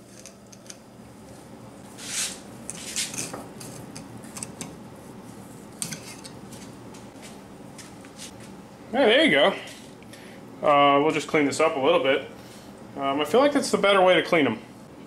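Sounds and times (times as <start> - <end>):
knife scraping along fish bone: 2.0 - 4.6.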